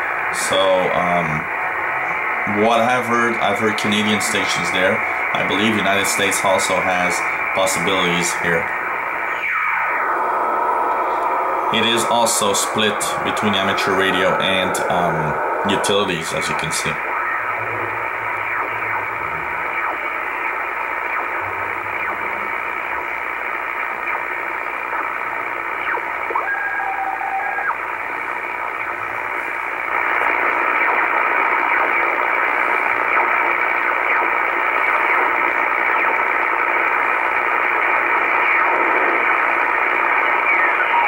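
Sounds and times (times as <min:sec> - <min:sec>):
radio static hiss: 0:00.0 - 0:41.0
two-tone radio signal: 0:00.0 - 0:41.0
faint sliding radio whistles: 0:09.2 - 0:12.1, 0:24.0 - 0:29.3, 0:38.1 - 0:41.0.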